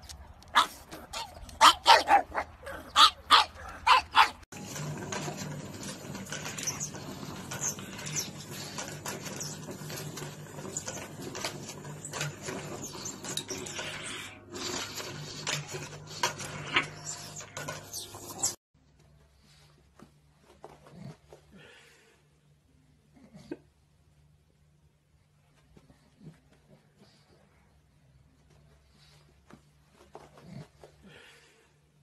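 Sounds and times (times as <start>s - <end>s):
toilet paper roll rattling on holder: 4.6s - 13.8s.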